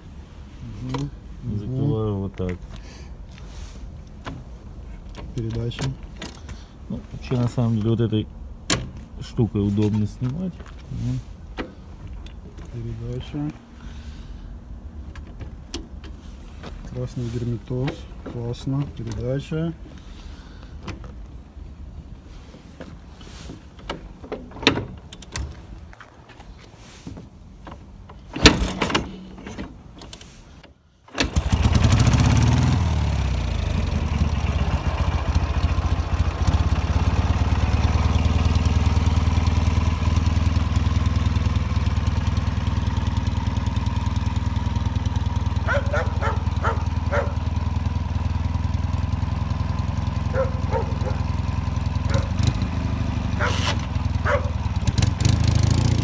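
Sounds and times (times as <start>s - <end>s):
motorcycle engine idling: 31.3s - 56.0s
dog barking: 45.6s - 47.4s, 50.3s - 51.3s, 52.1s - 52.4s, 53.4s - 54.6s.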